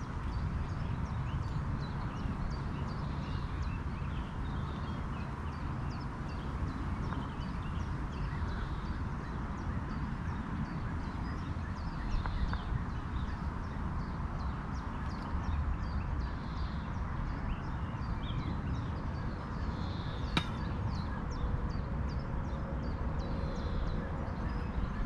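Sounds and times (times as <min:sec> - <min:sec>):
small birds chirping: 0:00.0 - 0:22.2.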